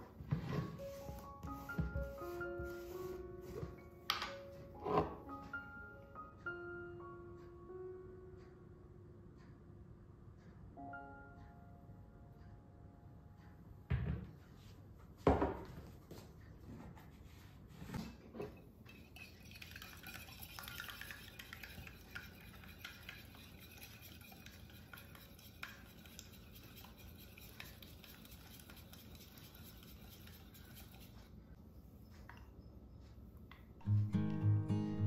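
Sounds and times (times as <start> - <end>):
whisk clinking in glass bowl: 18.9 - 31.2.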